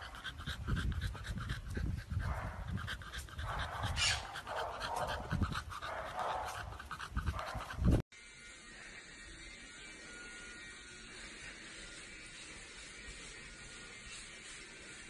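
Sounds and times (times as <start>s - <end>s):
puppy panting: 0.0s - 8.0s.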